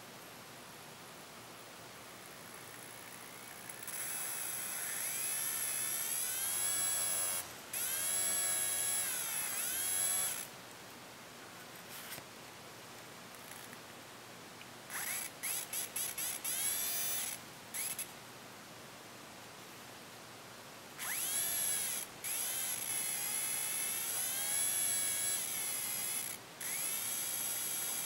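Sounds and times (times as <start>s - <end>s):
faint hiss: 0.0s - 28.0s
small motor whining: 2.6s - 10.5s, 14.9s - 18.1s, 21.0s - 28.0s.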